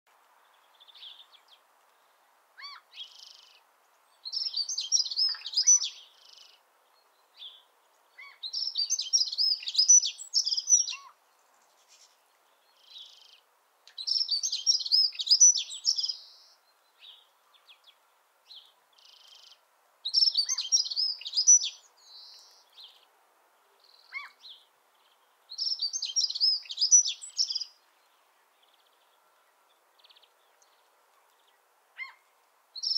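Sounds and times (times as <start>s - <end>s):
bird warbling song: 2.6s - 11.2s, 14.0s - 23.1s, 23.8s - 32.2s.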